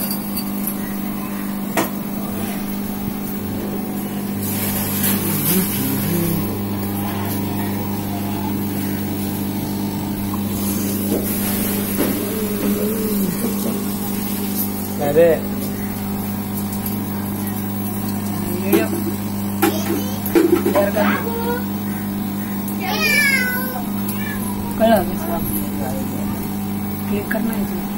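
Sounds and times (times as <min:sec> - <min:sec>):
lower hum: 0:00.0 - 0:19.7
aquarium pump humming: 0:00.0 - 0:27.9.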